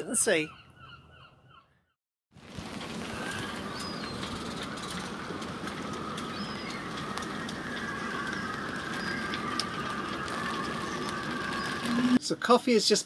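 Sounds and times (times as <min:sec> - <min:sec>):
wind whistling through rigging: 0:02.4 - 0:12.2.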